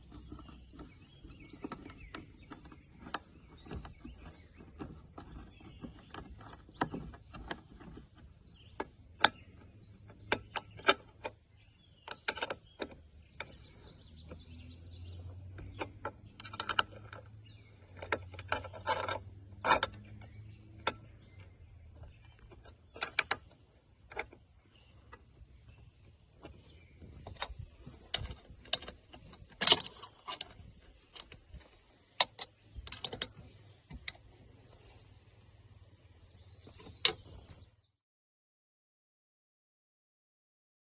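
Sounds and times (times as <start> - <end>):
metal hardware clicks and taps: 15.5 - 24.4.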